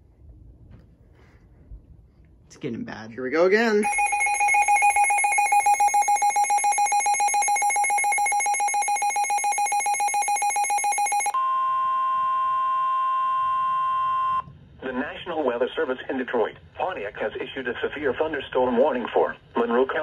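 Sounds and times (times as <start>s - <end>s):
steady alert tone: 3.6s - 11.4s
rapid pulsing alarm beep: 3.6s - 11.6s.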